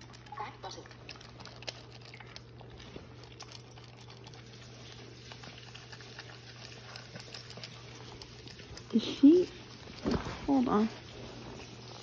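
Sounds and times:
dog crunching kibble: 0.0 - 12.0
kibble clicking on metal bowl: 5.3 - 9.9.

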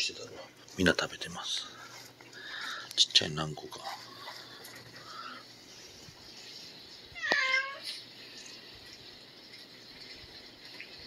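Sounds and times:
cat meowing: 7.2 - 8.0.

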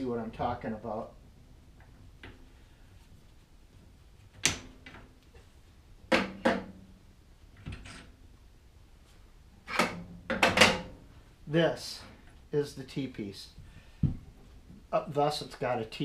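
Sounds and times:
metal clunks and knocks: 6.1 - 6.8, 9.7 - 11.0.

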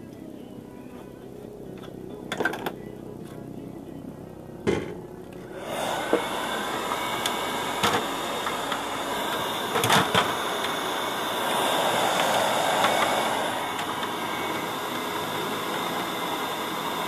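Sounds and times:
electric air blower rushing: 4.6 - 17.0.

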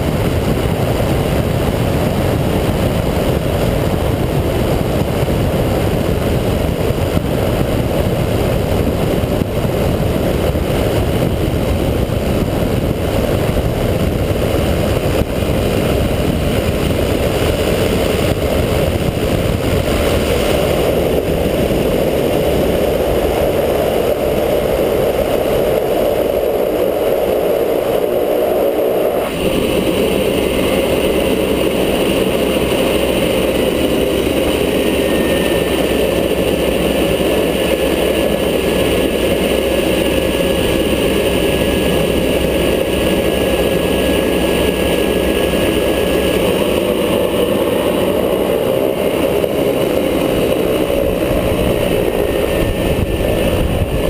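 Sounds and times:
airflow rushing: 0.0 - 54.0
turboprop engine and propeller: 0.0 - 54.0.

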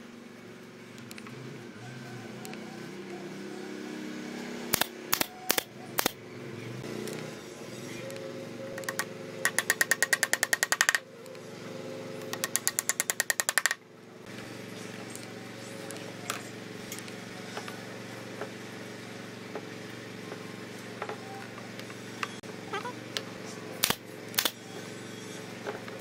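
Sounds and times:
brad nailer firing clicks: 4.7 - 6.2, 8.8 - 11.0, 12.2 - 13.8, 23.8 - 24.6.

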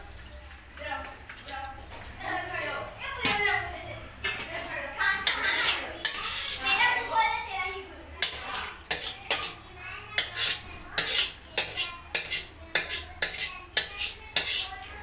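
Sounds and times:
metal ladle clinking and scraping pot: 5.2 - 6.9, 8.2 - 9.6, 10.2 - 14.8.

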